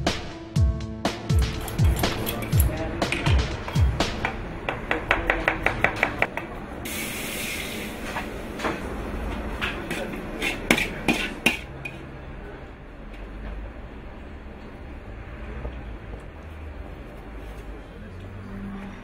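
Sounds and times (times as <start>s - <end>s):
knife chopping on wooden board: 9.7s - 11.7s.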